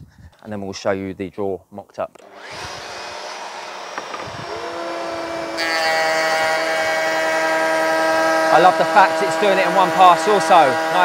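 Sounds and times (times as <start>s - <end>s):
dust extractor hissing: 2.2s - 11.0s
router whining: 2.2s - 11.0s.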